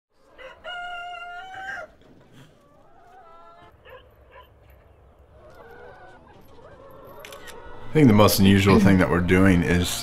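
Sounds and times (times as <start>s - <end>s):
rooster crowing: 0.4s - 2.0s.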